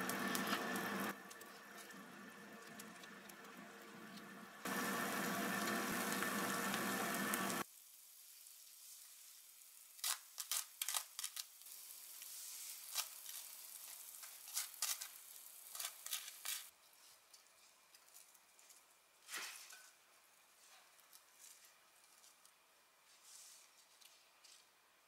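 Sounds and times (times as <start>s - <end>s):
loud steady hiss: 4.6s - 10.0s.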